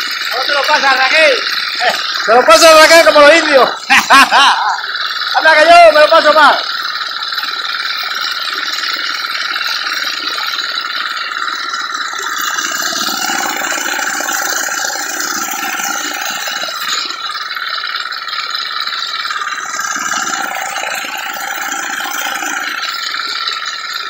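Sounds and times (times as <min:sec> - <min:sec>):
sickle-bar mower clattering: 0:00.0 - 0:24.0
small engine running: 0:00.0 - 0:24.0.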